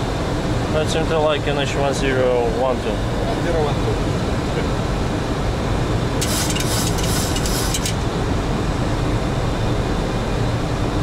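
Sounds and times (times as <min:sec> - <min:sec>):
high hiss: 0:06.2 - 0:08.0
cockpit airflow rushing: 0:06.2 - 0:08.3.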